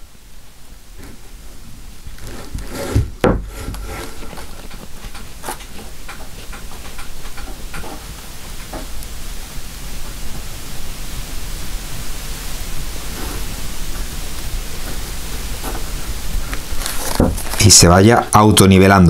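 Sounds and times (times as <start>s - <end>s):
tray rubbing and handling: 2.1s - 8.1s, 14.8s - 17.8s
sharp knocks: 2.6s - 4.3s.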